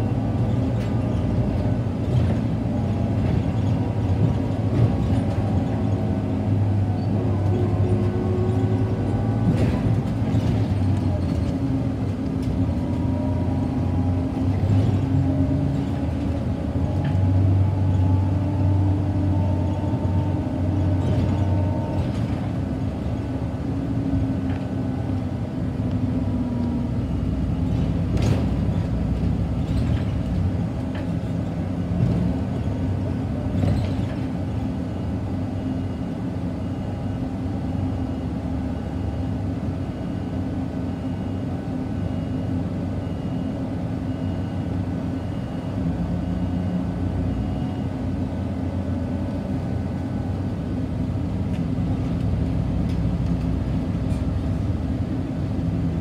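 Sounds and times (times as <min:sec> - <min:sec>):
bus engine running: 0:00.0 - 0:56.0
road rumble: 0:00.0 - 0:56.0
bus body knocks and rattles: 0:00.3 - 0:06.2, 0:07.8 - 0:13.1, 0:20.8 - 0:22.9, 0:27.6 - 0:34.7.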